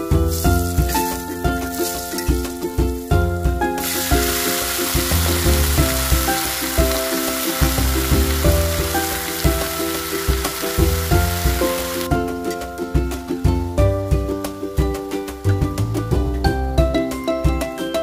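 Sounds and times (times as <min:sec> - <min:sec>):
background music with steady beat: 0:00.0 - 0:18.0
vegetables sizzling in hot oil: 0:00.2 - 0:02.6, 0:03.8 - 0:12.1.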